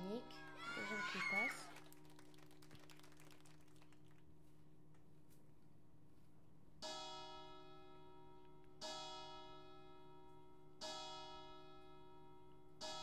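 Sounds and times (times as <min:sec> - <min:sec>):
church bell tolling: 0:06.8 - 0:13.0.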